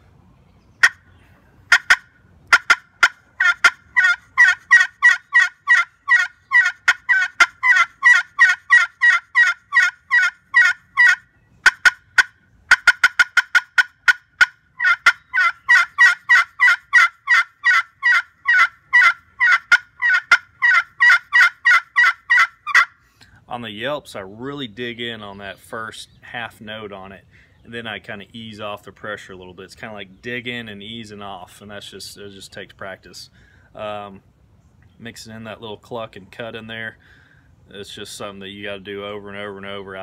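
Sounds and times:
turkey call yelps: 0:00.8 - 0:01.1, 0:01.7 - 0:23.0
turkey call clucks: 0:00.8 - 0:23.0.

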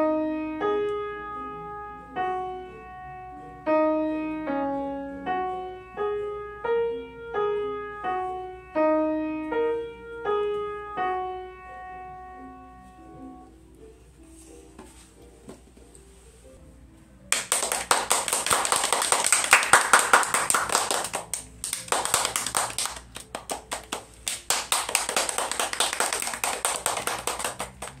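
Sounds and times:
piano notes: 0:00.0 - 0:28.0
hand clapping applause: 0:17.3 - 0:28.0.

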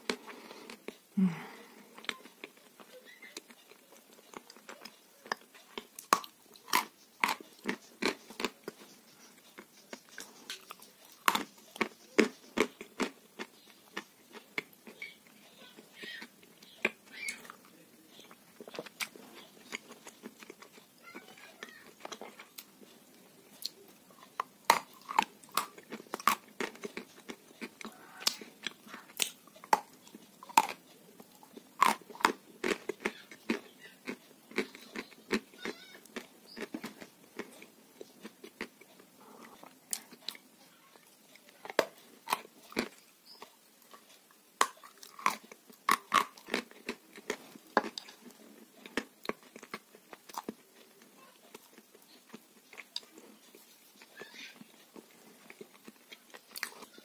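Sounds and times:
chewing fries: 0:00.0 - 0:57.0.

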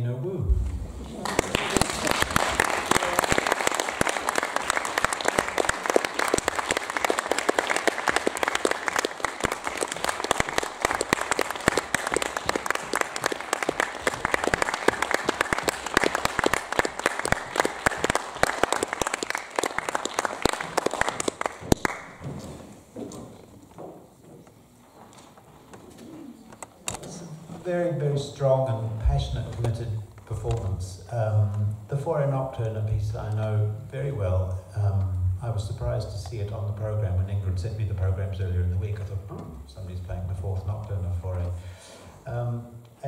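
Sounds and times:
audience applauding: 0:01.0 - 0:22.5.

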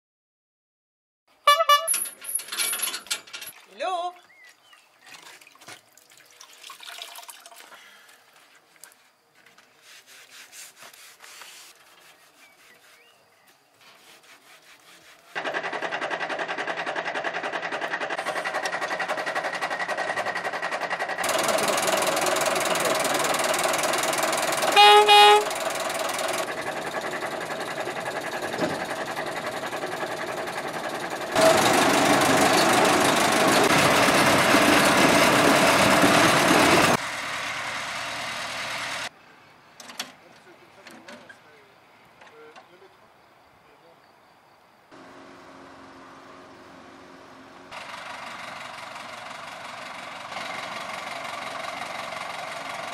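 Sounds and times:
locomotive horn blast: 0:01.4 - 0:02.1, 0:24.7 - 0:25.8
diesel locomotive engine running: 0:15.4 - 0:39.1, 0:45.0 - 0:52.9.

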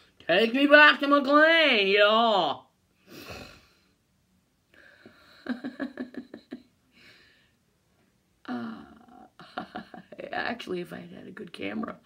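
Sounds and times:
woman muttering: 0:08.5 - 0:09.7.

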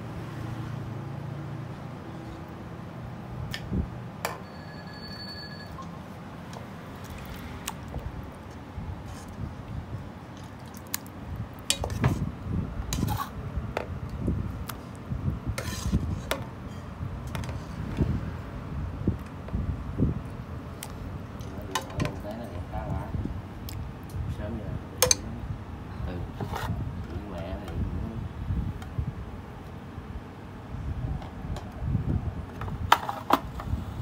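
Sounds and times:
ladle and bowls clinking on pot: 0:25.0 - 0:25.3.

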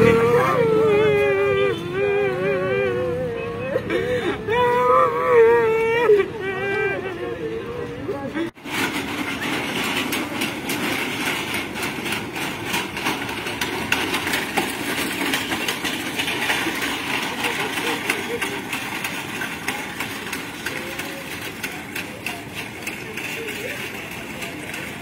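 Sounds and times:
background voices: 0:00.0 - 0:08.6
vehicle engine idling: 0:07.6 - 0:25.0.

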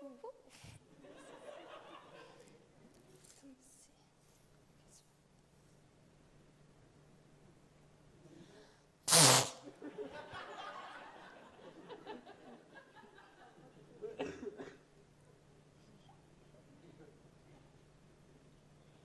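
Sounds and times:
audience laughter: 0:01.0 - 0:02.5, 0:09.6 - 0:14.4.

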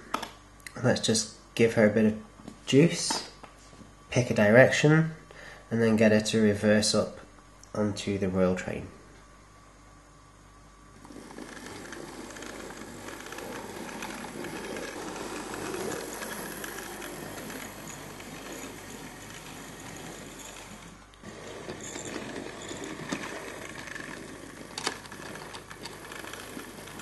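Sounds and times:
model train motor whirring: 0:11.0 - 0:27.0
wheels rattling over track: 0:11.1 - 0:27.0.

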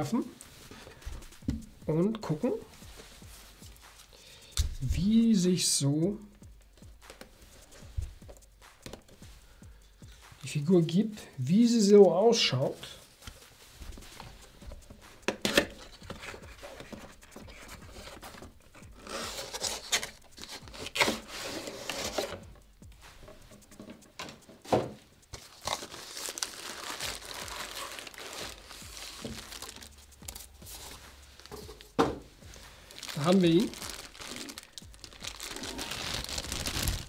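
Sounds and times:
cardboard packaging rustling: 0:12.7 - 0:22.6, 0:23.2 - 0:37.0
cardboard tearing: 0:19.0 - 0:22.4, 0:25.4 - 0:31.6, 0:32.9 - 0:37.0
plastic bag crinkling: 0:25.4 - 0:31.9, 0:32.5 - 0:37.0.

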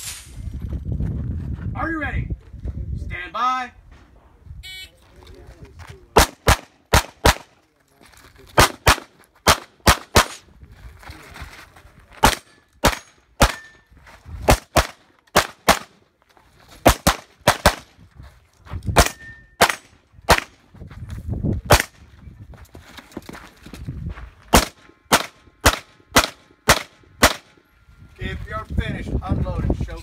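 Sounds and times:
pistol shots: 0:06.2 - 0:07.5, 0:08.6 - 0:10.4, 0:12.2 - 0:13.8, 0:14.5 - 0:16.0, 0:16.8 - 0:17.9, 0:19.0 - 0:20.6, 0:21.7 - 0:22.0, 0:24.5 - 0:27.5.

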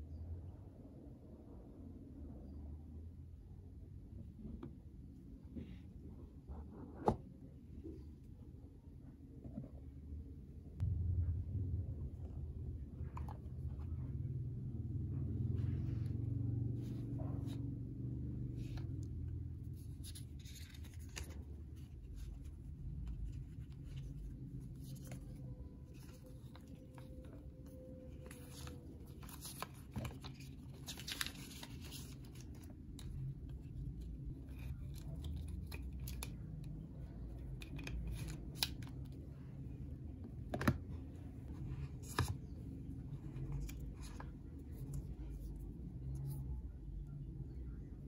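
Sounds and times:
low steady hum: 0:00.0 - 0:48.0
paper rustling: 0:19.7 - 0:36.4, 0:41.6 - 0:45.7.

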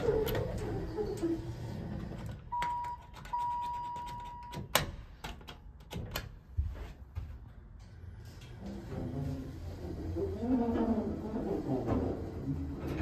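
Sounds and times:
elevator doors sliding open: 0:00.0 - 0:02.9, 0:08.0 - 0:13.0
elevator running sound: 0:00.0 - 0:04.6, 0:07.7 - 0:13.0.

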